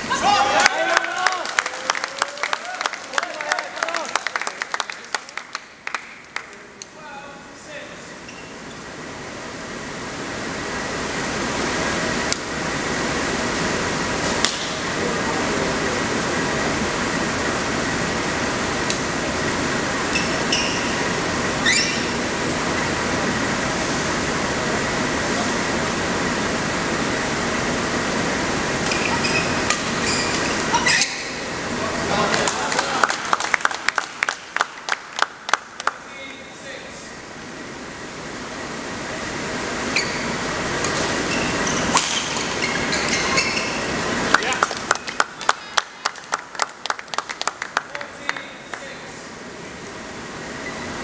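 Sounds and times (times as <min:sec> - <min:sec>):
sports hall background noise: 0:00.0 - 0:51.0
shoes squeaking on court floor: 0:08.2 - 0:08.8, 0:20.1 - 0:21.0, 0:21.6 - 0:22.2, 0:28.9 - 0:31.4, 0:39.9 - 0:40.4, 0:41.2 - 0:44.0.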